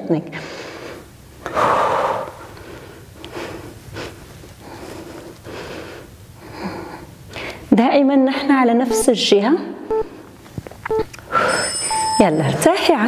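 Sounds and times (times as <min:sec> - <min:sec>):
woman breathing hard: 0:00.3 - 0:07.7.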